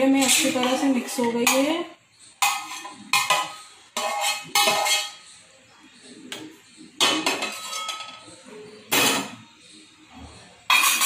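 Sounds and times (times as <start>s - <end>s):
spoon clinking on steel pan: 0.0s - 5.3s, 10.7s - 11.0s.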